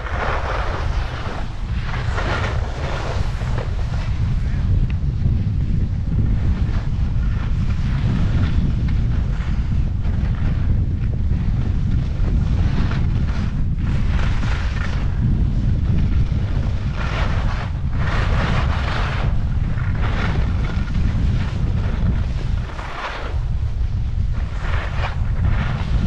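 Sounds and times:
skis scraping on snow: 0.0s - 26.0s
wind on microphone: 0.0s - 26.0s.

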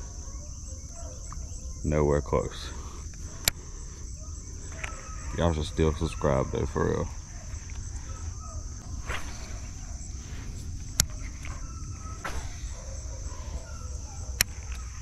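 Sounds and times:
crickets chirping: 0.0s - 15.0s
sharp clicks: 3.0s - 3.8s, 10.8s - 12.8s, 14.2s - 15.0s.

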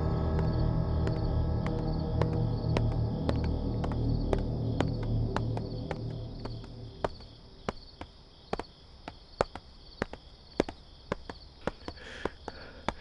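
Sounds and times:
crickets chirping: 0.0s - 13.0s
footsteps on hard floor: 0.3s - 8.7s.

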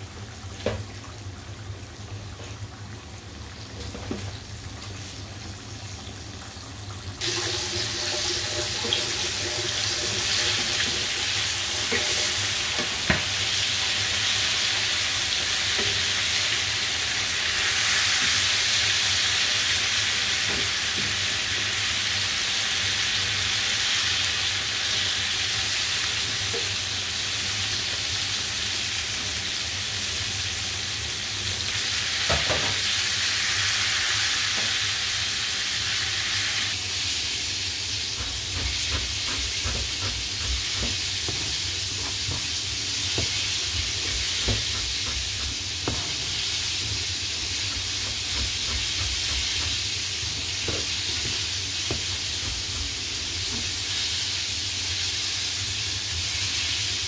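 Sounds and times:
chicken frying in hot oil: 0.0s - 57.0s
knife tapping on cutting board: 44.4s - 46.2s.

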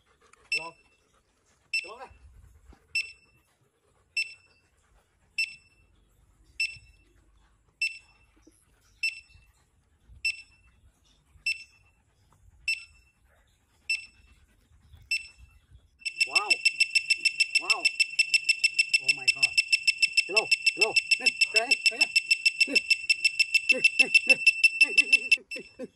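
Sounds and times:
metal detector beeping: 16.0s - 25.9s.

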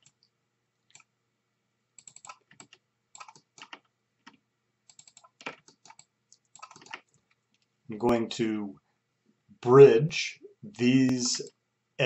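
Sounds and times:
computer keyboard clicking: 2.0s - 3.8s, 4.9s - 7.1s.

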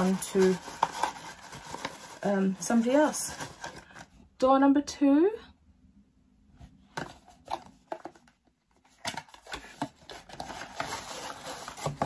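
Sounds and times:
paper and card rustling: 0.0s - 4.2s, 7.0s - 12.0s
cardboard taps and scrapes: 9.0s - 12.0s.

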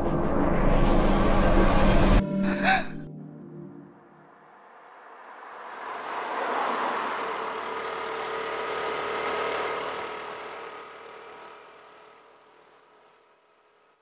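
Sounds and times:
road noise rush: 3.8s - 14.0s
motorcycle engine hum: 3.9s - 14.0s.

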